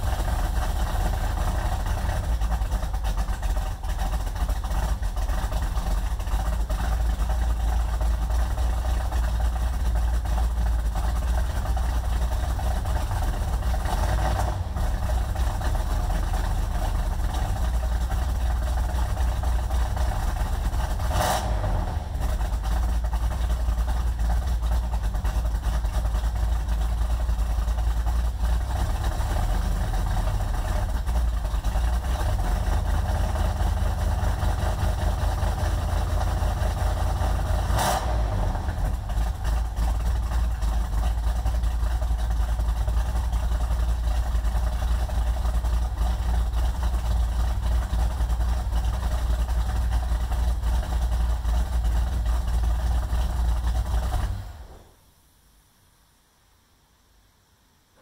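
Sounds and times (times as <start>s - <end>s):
car engine idling: 0.0s - 55.1s.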